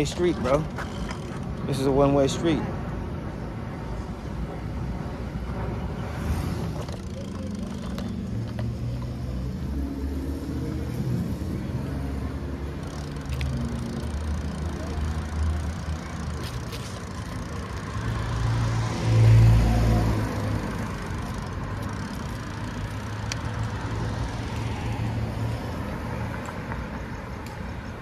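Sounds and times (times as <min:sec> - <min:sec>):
city traffic hum: 0:00.0 - 0:28.0
car passing close by: 0:18.2 - 0:21.7.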